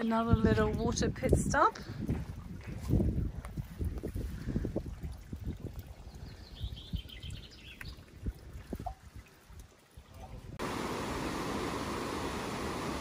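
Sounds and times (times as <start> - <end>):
wind rumble on microphone: 0.0 - 10.6
water trickling into a bottle: 2.0 - 10.6
river rushing: 10.6 - 13.0.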